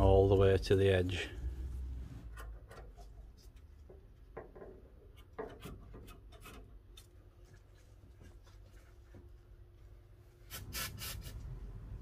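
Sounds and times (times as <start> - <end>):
rubbing and scraping of carpet: 10.5 - 11.5.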